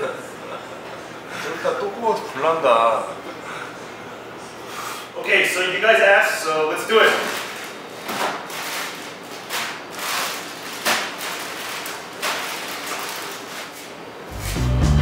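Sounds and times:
plastic packets crinkling: 0:06.9 - 0:14.0
upbeat music: 0:14.3 - 0:15.0.

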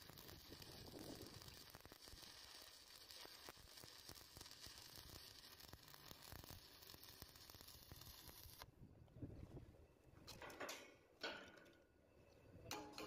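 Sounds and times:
welding arc crackling sizzle: 0:00.0 - 0:08.7.

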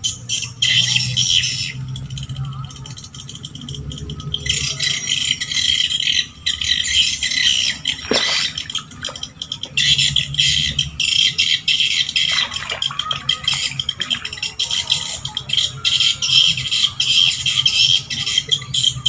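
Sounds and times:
swiftlets chirping: 0:04.5 - 0:15.8.

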